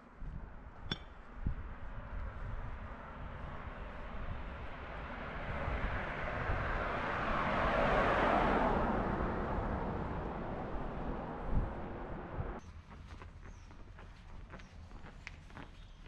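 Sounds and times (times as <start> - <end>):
passing vehicle rushing: 2.8 - 12.6.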